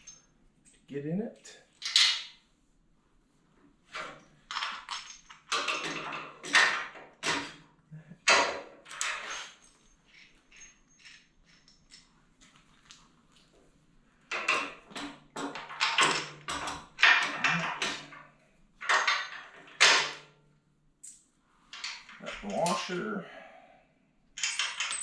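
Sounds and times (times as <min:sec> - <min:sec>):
metal clicks and rattles of tools: 0:00.0 - 0:00.9, 0:01.7 - 0:02.4, 0:04.0 - 0:07.6, 0:08.2 - 0:12.2, 0:14.3 - 0:20.3, 0:21.0 - 0:23.1, 0:24.4 - 0:25.0.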